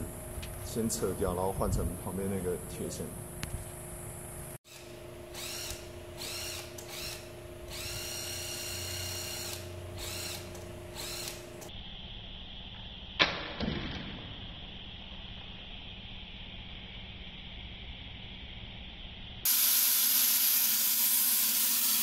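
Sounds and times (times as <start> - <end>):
cordless drill whining: 4.7 - 11.7.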